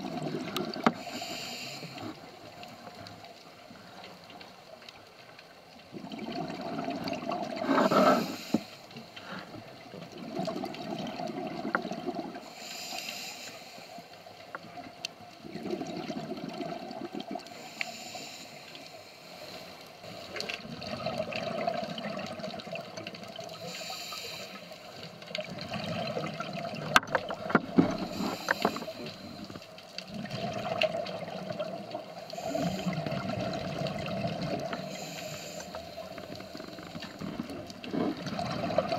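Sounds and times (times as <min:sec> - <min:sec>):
rush of bubbles: 0:00.0 - 0:01.2, 0:05.9 - 0:08.5, 0:10.1 - 0:12.5, 0:15.4 - 0:17.7, 0:20.4 - 0:23.7, 0:25.3 - 0:29.4, 0:30.0 - 0:38.9
regulator hiss on inhale: 0:00.8 - 0:03.1, 0:07.6 - 0:09.6, 0:12.4 - 0:14.7, 0:17.4 - 0:20.6, 0:23.5 - 0:25.2, 0:28.0 - 0:29.8, 0:32.1 - 0:33.2, 0:34.6 - 0:37.3.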